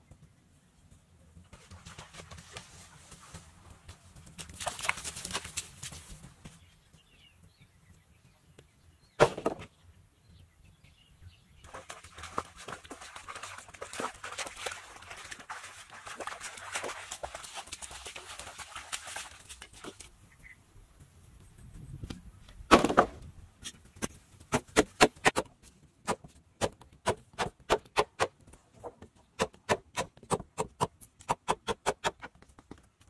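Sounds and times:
bamboo poles clacking: 22.0 - 33.0.

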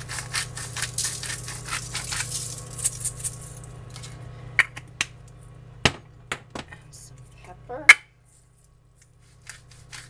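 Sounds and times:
scratchy foil rustles: 0.0 - 3.7, 8.3 - 10.0.

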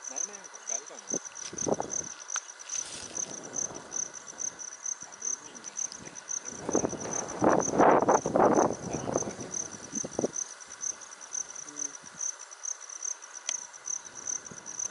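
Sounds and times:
insects chirping: 0.0 - 14.9.

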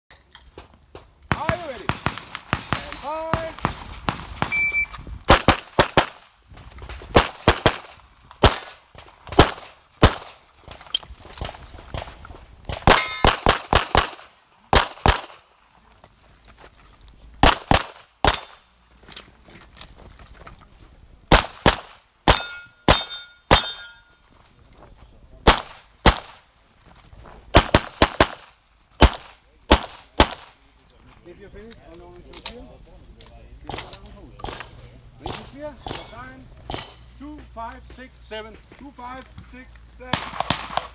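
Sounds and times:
pistol shots: 1.3 - 6.3, 7.1 - 10.8, 12.7 - 15.4, 17.4 - 18.6, 21.3 - 24.0, 25.4 - 26.4, 27.5 - 30.6, 33.7 - 37.0, 40.1 - 40.9
steel targets clanging: 12.9 - 13.3, 18.3 - 18.8, 22.3 - 24.2, 35.3 - 37.2.

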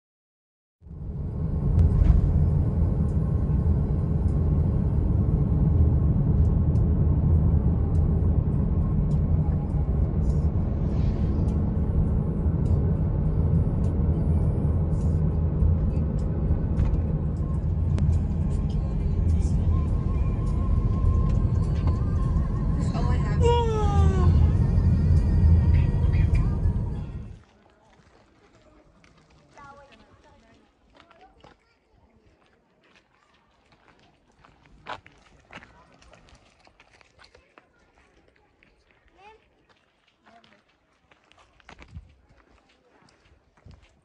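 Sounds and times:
car road and engine rumble: 0.8 - 27.4.

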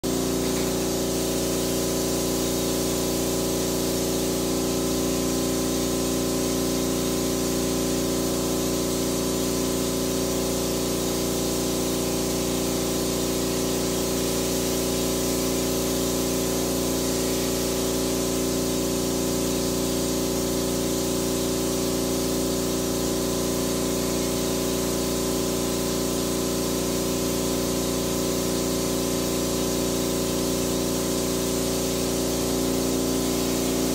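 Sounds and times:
sprayer motor hum: 0.0 - 33.9
hiss of spray: 0.1 - 33.9.

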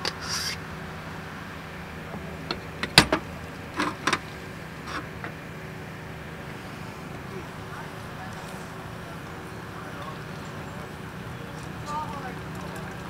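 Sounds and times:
steady low hum: 0.0 - 13.0
sharp clicks and knocks: 2.5 - 5.4.

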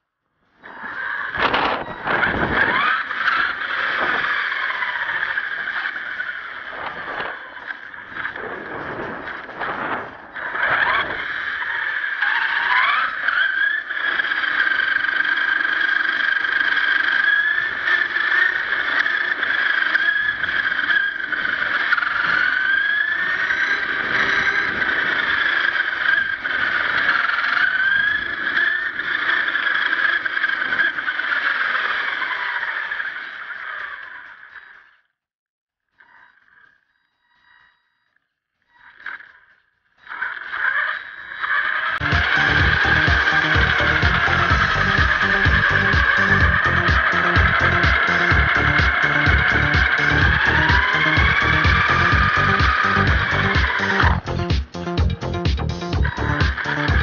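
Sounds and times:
toy truck motor whining: 0.5 - 35.2, 35.9 - 54.4, 56.0 - 57.0.

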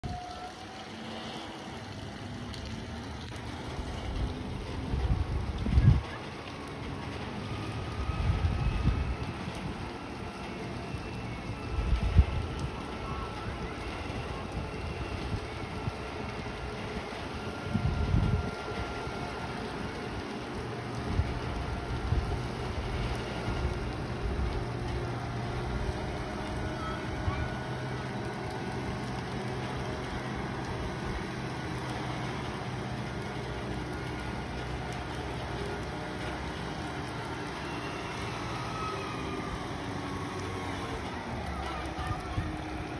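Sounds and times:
engine drone: 0.0 - 42.9
wind gusts buffeting microphone: 2.9 - 6.4, 7.8 - 10.2, 11.2 - 27.7
steady rush of wind: 3.7 - 6.4, 7.5 - 10.2, 10.8 - 27.4.

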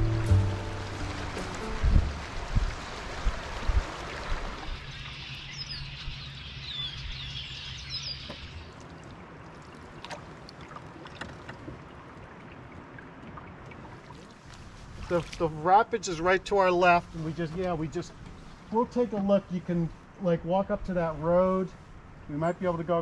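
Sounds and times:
paddle water splashing: 0.0 - 6.1, 8.1 - 20.2
bird chirping: 4.7 - 8.7.

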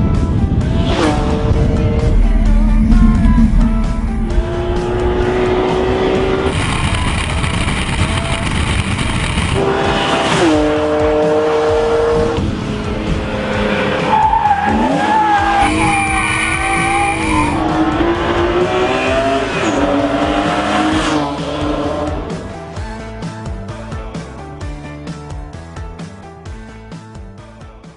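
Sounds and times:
car engine revving hard: 0.7 - 7.9, 8.6 - 22.3.

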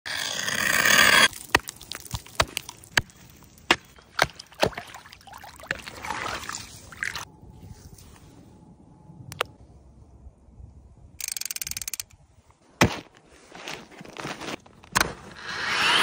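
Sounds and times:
hatchet chopping ice: 0.5 - 3.1
water sloshing: 1.3 - 7.3.

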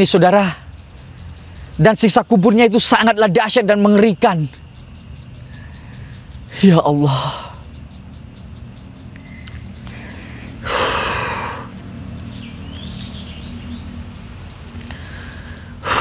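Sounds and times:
man breathing hard: 9.2 - 11.8, 14.8 - 16.0.

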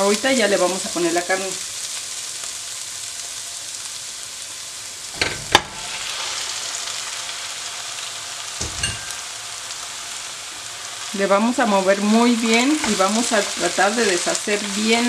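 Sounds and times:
onion and garlic sizzling in oil: 0.0 - 15.0
bowl knocking on pan: 8.6 - 9.3.

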